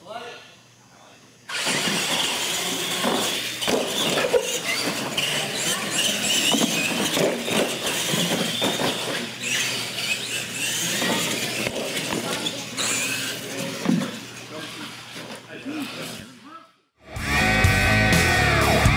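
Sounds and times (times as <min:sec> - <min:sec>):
tyre noise: 0:01.5 - 0:14.6
toy truck motors whining: 0:01.5 - 0:16.4.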